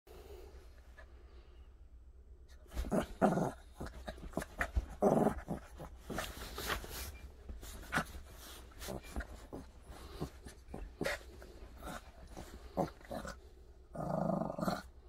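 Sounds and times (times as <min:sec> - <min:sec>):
small dog growling: 0:02.7 - 0:06.4, 0:08.8 - 0:14.9.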